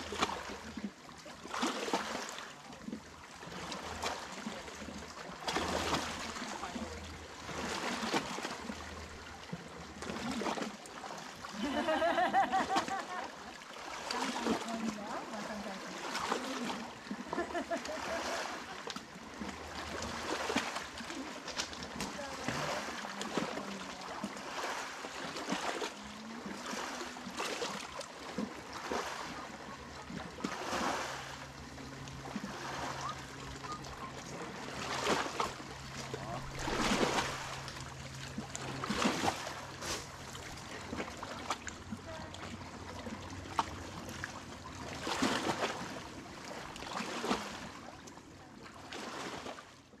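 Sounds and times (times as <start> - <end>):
small waves lapping against rocks: 0.0 - 50.0.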